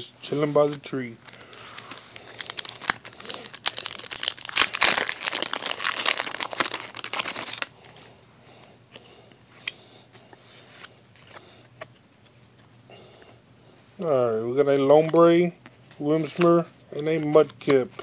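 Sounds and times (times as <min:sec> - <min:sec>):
foil wrapper crinkling: 0:01.2 - 0:07.7
cards being flipped: 0:15.9 - 0:18.0.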